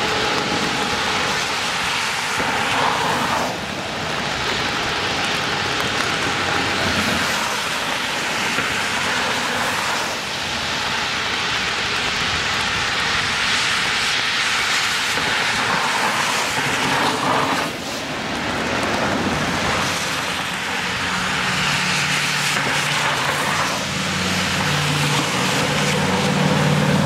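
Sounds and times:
tyres hissing through water: 0:00.0 - 0:27.0
car engine hum: 0:15.2 - 0:27.0.

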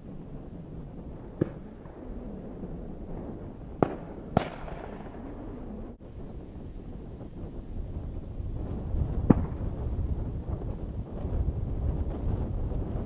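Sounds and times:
wind rumble: 0:00.0 - 0:13.0
distant shotgun shots: 0:01.4 - 0:02.0, 0:03.8 - 0:05.7.

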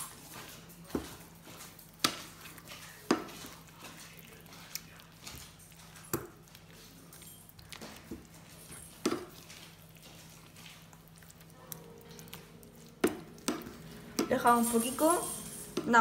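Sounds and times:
wooden spatula stirring stew: 0:00.0 - 0:16.0
sauce squelching: 0:01.8 - 0:14.6.

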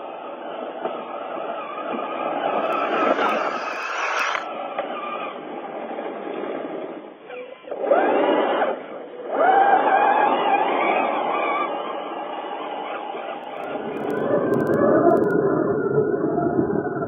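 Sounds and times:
rc truck electric motor whining: 0:01.1 - 0:05.2.

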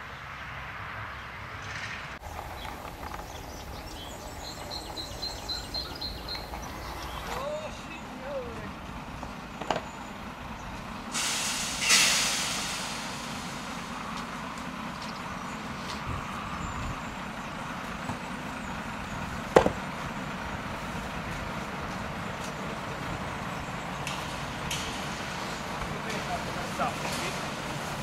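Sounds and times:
truck engine idling: 0:02.2 - 0:28.0
loud hiss: 0:11.1 - 0:14.6.

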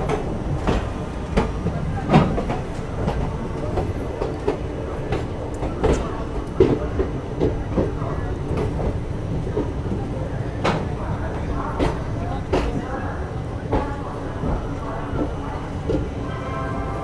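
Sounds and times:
train wheels clacking over rail joints: 0:00.0 - 0:13.0.

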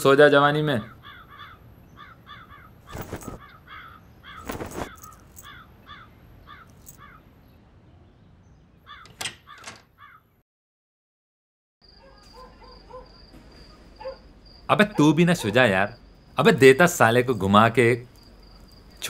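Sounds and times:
crows cawing: 0:00.8 - 0:07.2, 0:08.9 - 0:10.3.

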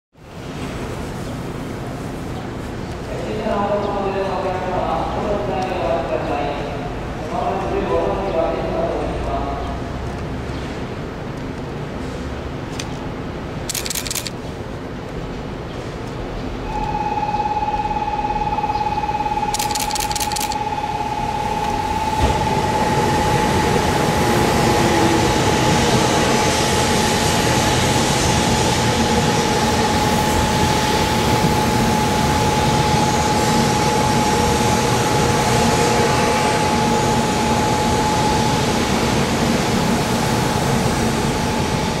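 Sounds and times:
steady high tone: 0:16.6 - 0:39.6.

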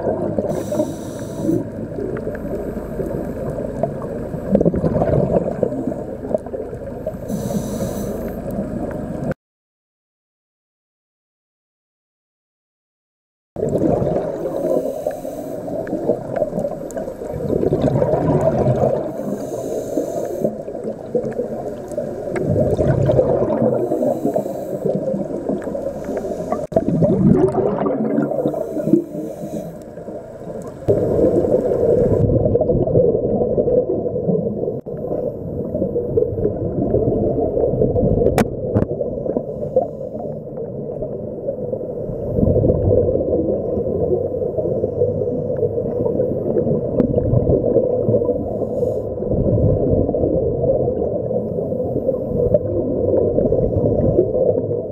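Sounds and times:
gurgling bubble surges: 0:00.0 - 0:00.5, 0:01.6 - 0:07.2, 0:13.6 - 0:14.8, 0:15.7 - 0:19.4, 0:20.6 - 0:29.0, 0:30.0 - 0:39.6, 0:40.2 - 0:54.9
scuba regulator breathing underwater: 0:00.4 - 0:08.6, 0:13.7 - 0:32.2, 0:39.0 - 0:40.6, 0:48.1 - 0:49.4.

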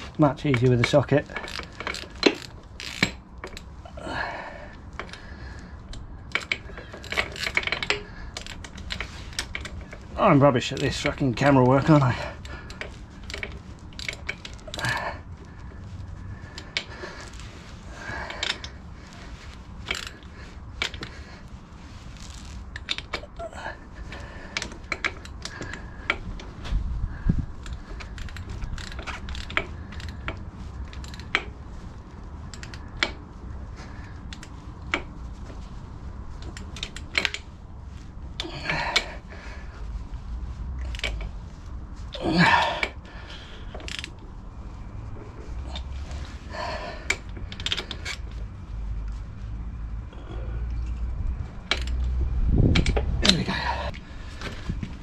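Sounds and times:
metal tool clinking on hub: 0:00.3 - 0:03.6
socket ratchet clicking: 0:00.8 - 0:03.7.

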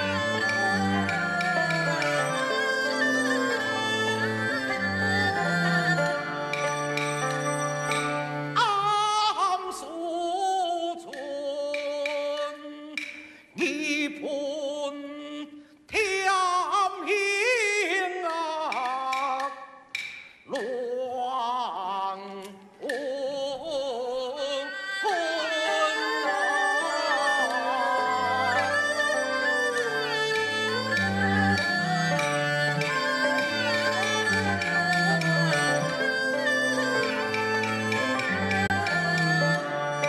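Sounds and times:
traditional instrumental accompaniment: 0:00.0 - 0:14.5, 0:16.0 - 0:40.0
person singing ornamented phrases: 0:08.6 - 0:19.8, 0:20.5 - 0:39.9.

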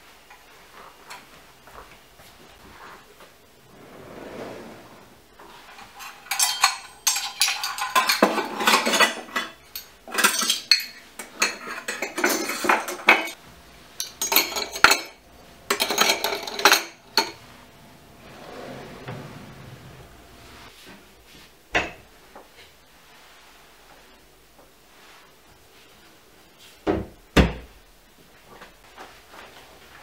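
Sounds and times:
metal utensils clinking and rattling: 0:05.6 - 0:13.4, 0:14.0 - 0:17.4.

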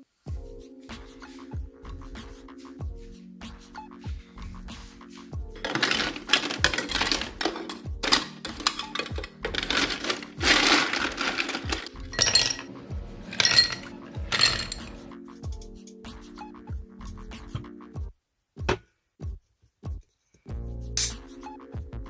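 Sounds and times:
background music with steady beat: 0:00.0 - 0:22.0
ice cubes clinking against glass: 0:05.6 - 0:12.7, 0:13.3 - 0:15.0.

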